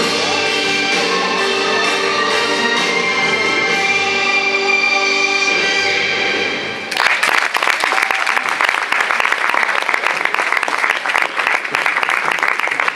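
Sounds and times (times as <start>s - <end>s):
orchestral music with strings: 0.0s - 6.9s
audience applause: 6.9s - 12.9s.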